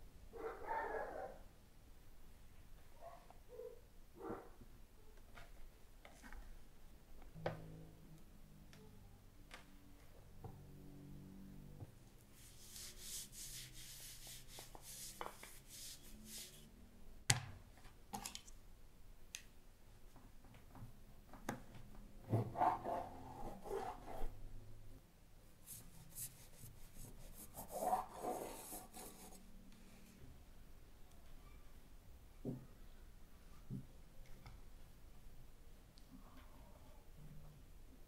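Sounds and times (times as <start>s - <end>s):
hands rubbing rolling pin: 12.4s - 16.7s, 25.6s - 29.4s.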